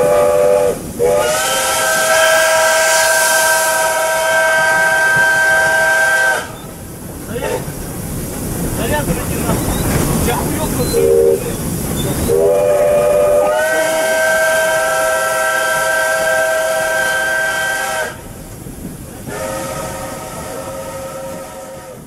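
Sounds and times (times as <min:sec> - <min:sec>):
steam locomotive whistle: 0:00.0 - 0:06.7, 0:10.9 - 0:11.5, 0:12.2 - 0:18.2, 0:19.3 - 0:22.0
steam hissing: 0:00.0 - 0:22.0.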